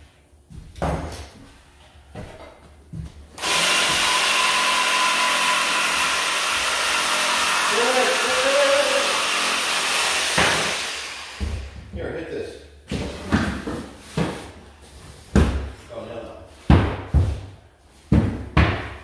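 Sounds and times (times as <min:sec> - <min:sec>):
cordless power tool running: 0:03.4 - 0:11.8.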